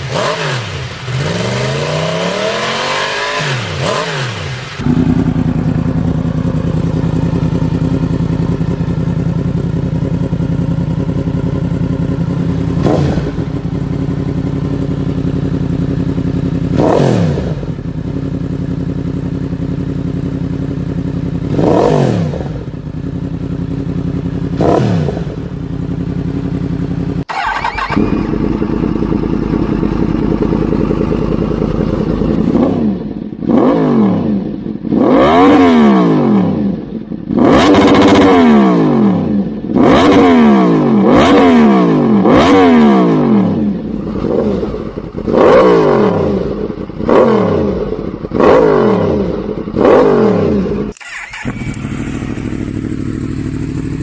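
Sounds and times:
motorcycle idling and revving: 0.0s - 54.0s
motorcycles idling and revving: 0.0s - 54.0s.

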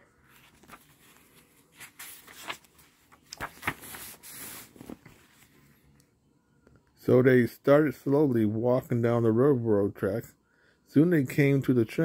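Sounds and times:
paper page rustling: 0.2s - 5.7s.

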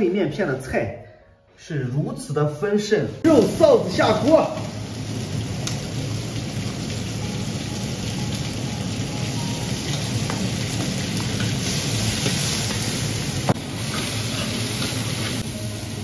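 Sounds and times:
meat sizzling in oil: 3.3s - 16.0s.

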